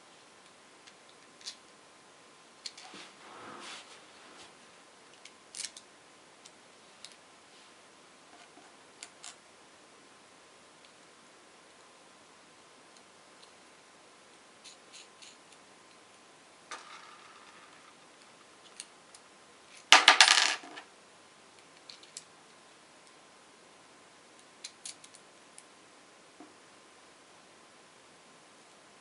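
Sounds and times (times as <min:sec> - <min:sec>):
light clicks of small parts: 0:21.6 - 0:23.2, 0:24.4 - 0:25.7.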